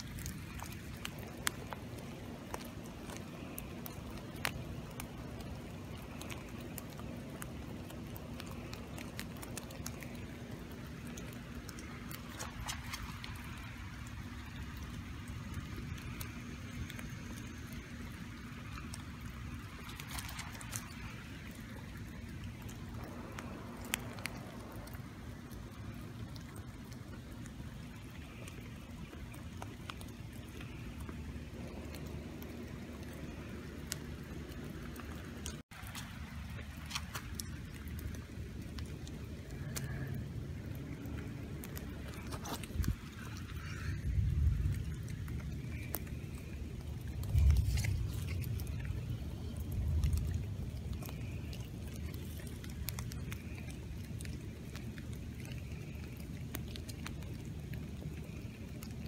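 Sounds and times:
rain on wet leaves: 0.0 - 59.0.

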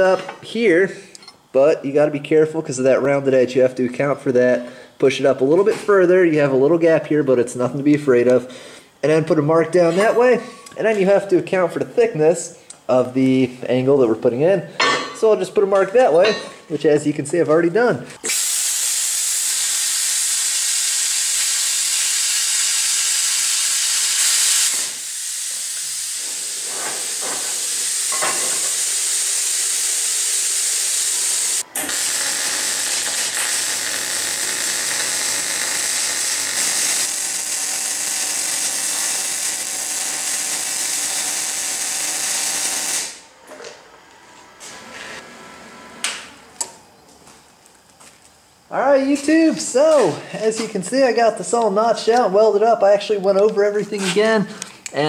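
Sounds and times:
crackling of welding steel: 18.2 - 43.3
cutting torch hissing: 18.2 - 43.3.

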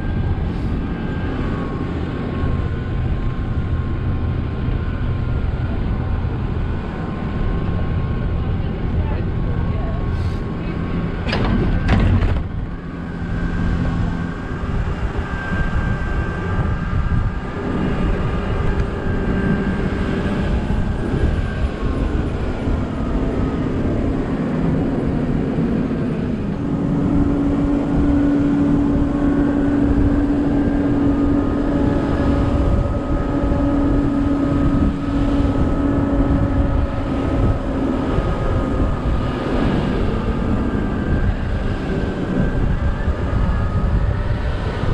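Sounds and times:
bus engine whine: 0.0 - 44.9
wind on microphone: 0.0 - 44.9.

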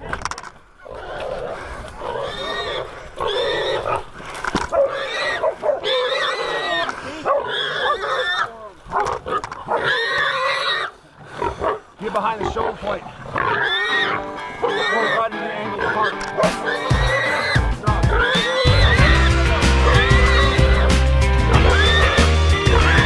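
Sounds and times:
hog squealing: 4.8 - 8.6, 9.7 - 10.9, 13.4 - 23.0.

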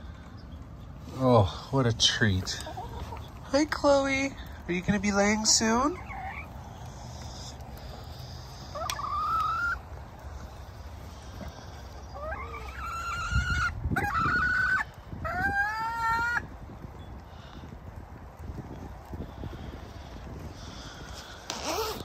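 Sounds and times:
hens squawking: 0.0 - 17.6
low outdoor noise: 0.0 - 22.0.

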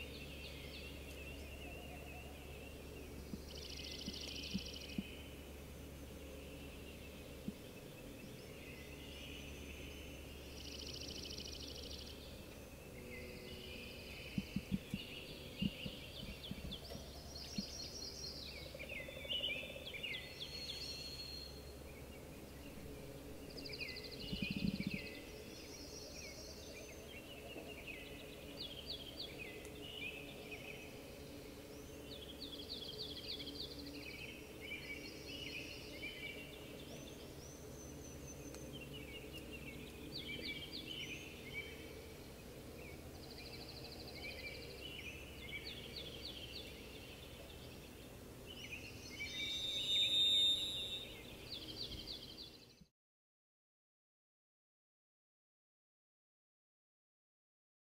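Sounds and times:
steady low hum: 0.0 - 49.5
songbirds singing and calling: 0.0 - 52.9
soft low thumps: 14.4 - 17.7, 24.2 - 25.0.

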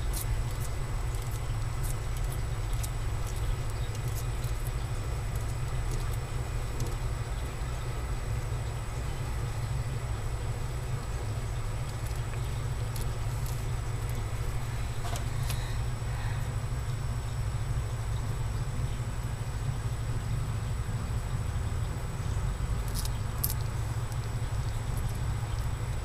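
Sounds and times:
steady low hum: 0.0 - 26.0.

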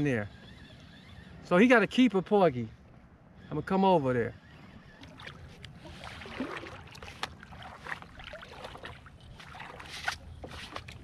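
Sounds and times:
paddle splashing in water: 5.0 - 11.0.

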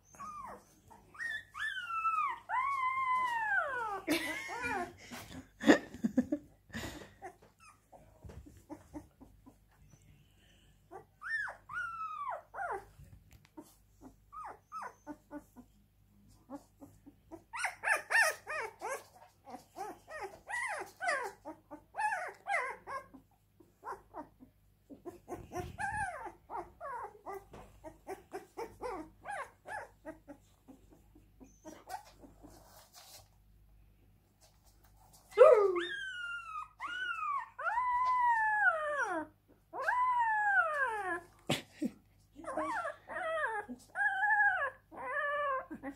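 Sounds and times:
puppy whimpering and squealing: 0.0 - 4.9, 10.9 - 13.0, 13.6 - 15.8, 16.5 - 33.2, 35.2 - 41.4, 42.4 - 45.9.

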